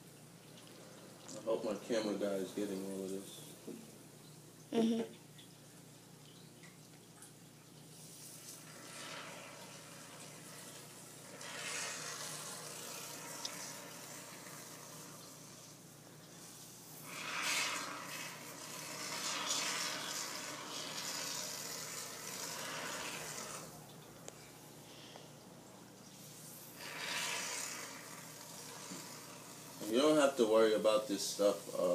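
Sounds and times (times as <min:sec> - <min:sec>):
spray foam hissing from can: 0:16.4 - 0:23.7, 0:26.3 - 0:30.5.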